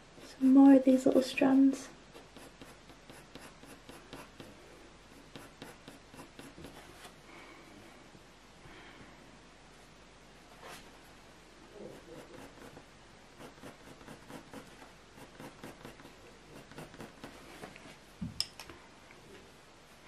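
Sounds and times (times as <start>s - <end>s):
pencil scratching on paper: 2.1s - 7.1s, 11.8s - 17.4s.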